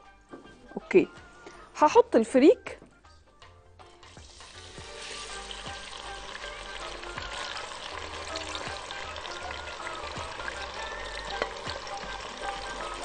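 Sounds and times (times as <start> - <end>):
grains sizzling in hot fat: 4.0 - 13.0.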